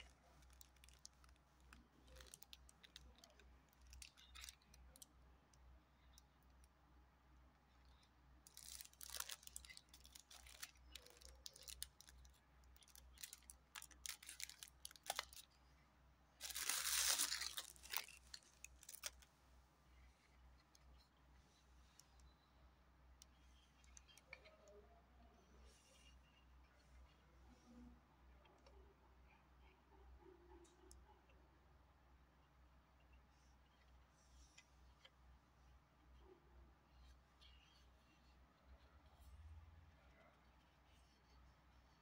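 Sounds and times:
plastic film crinkling: 0.0 - 5.0, 8.4 - 15.6, 16.4 - 19.3.

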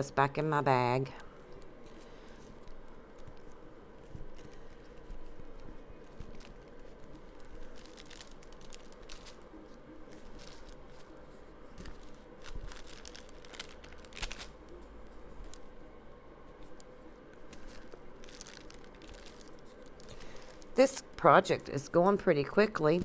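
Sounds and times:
plastic bag crinkling: 2.4 - 15.7, 17.4 - 21.8.

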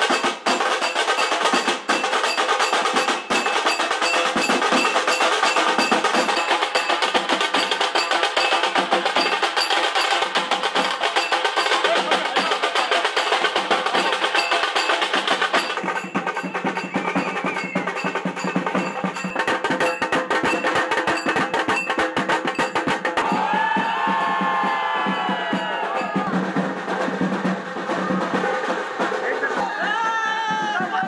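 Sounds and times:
fast percussion music: 0.0 - 31.0.

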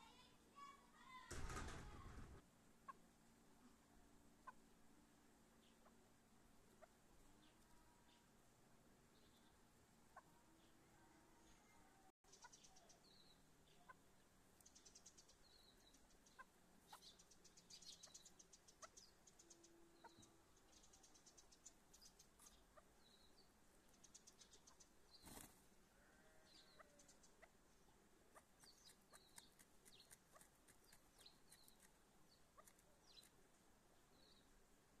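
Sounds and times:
bird chirps and clucks: 6.7 - 8.3, 9.2 - 10.8, 11.4 - 25.5, 26.2 - 33.4.

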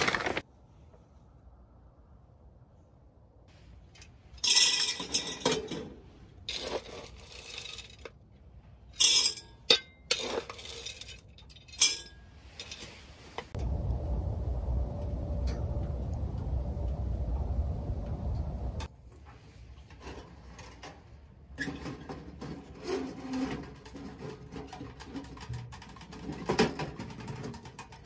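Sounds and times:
pellets rattling into steel hopper: 0.0 - 0.4
steady low rumble: 13.5 - 18.9.

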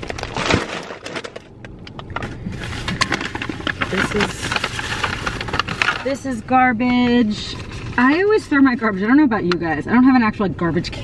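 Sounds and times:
plastic bags crinkling: 0.0 - 6.2.

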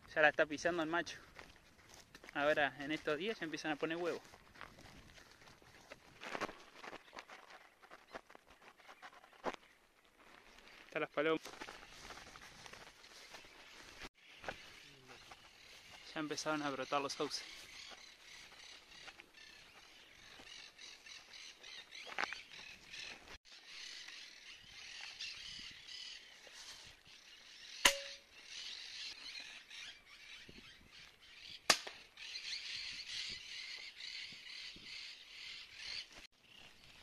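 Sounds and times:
birds chattering: 13.2 - 26.5.

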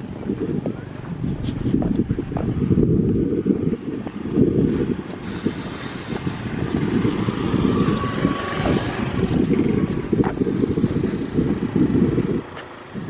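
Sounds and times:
wind buffeting microphone: 0.0 - 13.0
motor scooter riding past: 5.3 - 12.4.

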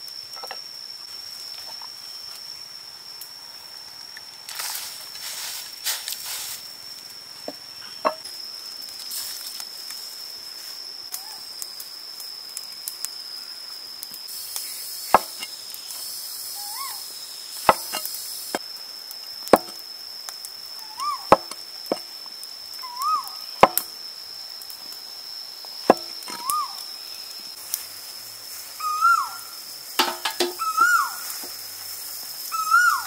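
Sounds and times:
cleaver chopping on wooden board: 15.1 - 15.5, 17.7 - 18.0, 19.6 - 19.8, 23.6 - 23.9, 25.9 - 26.2
bird call rising and falling: 22.8 - 23.4, 26.4 - 26.8, 28.8 - 29.5, 30.4 - 31.4, 32.5 - 33.0.

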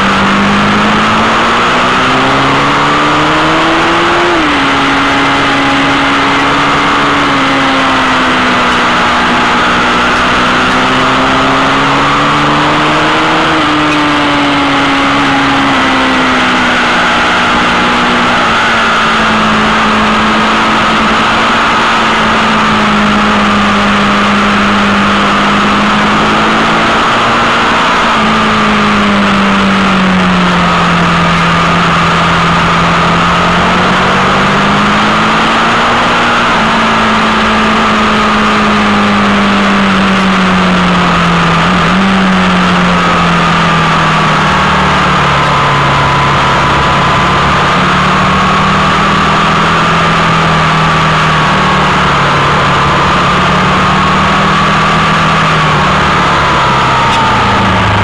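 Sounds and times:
motorcycle engine at speed: 0.0 - 58.0.

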